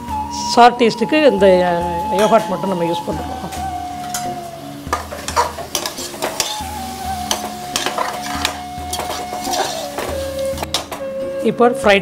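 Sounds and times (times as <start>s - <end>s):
food sizzling in oil: 0.0s - 11.0s
soft background music: 0.0s - 12.0s
metal spoon scraping a pot: 4.0s - 10.9s.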